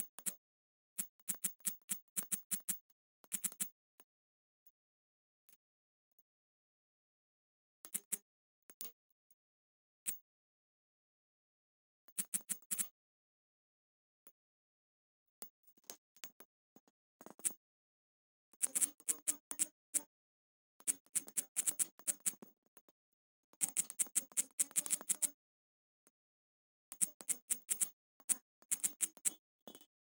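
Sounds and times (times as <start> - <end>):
typing on smartphone keyboard: 1.0 - 3.7, 7.9 - 8.2, 12.1 - 12.9, 18.6 - 20.1, 20.8 - 22.5, 23.6 - 25.4, 26.9 - 29.9.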